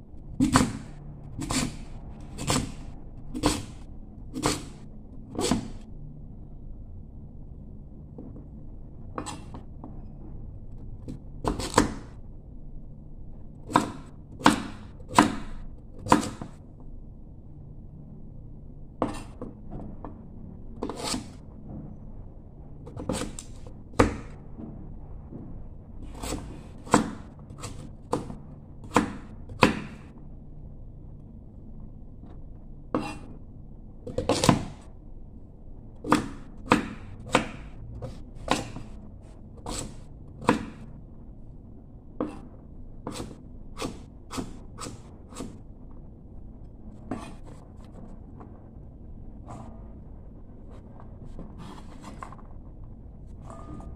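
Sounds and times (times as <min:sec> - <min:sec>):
low background hum: 0:00.0 - 0:53.9
knife chopping on wooden board: 0:00.4 - 0:05.8, 0:11.4 - 0:12.1, 0:13.7 - 0:16.6, 0:20.8 - 0:21.4, 0:22.9 - 0:24.4, 0:26.1 - 0:30.1, 0:32.9 - 0:33.3, 0:34.1 - 0:34.8, 0:36.0 - 0:38.9, 0:39.6 - 0:40.8, 0:42.2 - 0:45.6.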